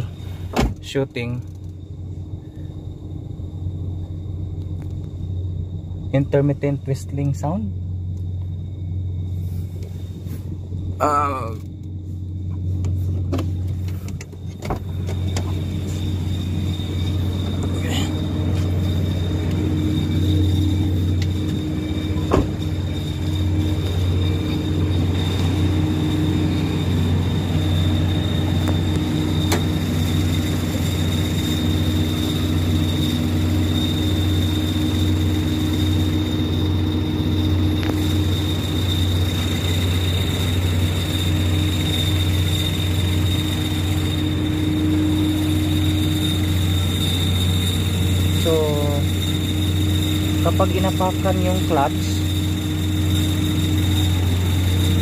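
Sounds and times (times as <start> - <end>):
car engine idling: 0.0 - 55.0
high-pitched whistle: 14.8 - 55.0.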